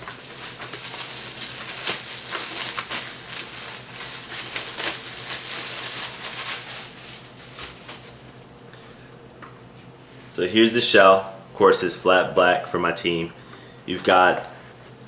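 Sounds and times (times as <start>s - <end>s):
plastic bag crinkling: 0.0s - 8.2s.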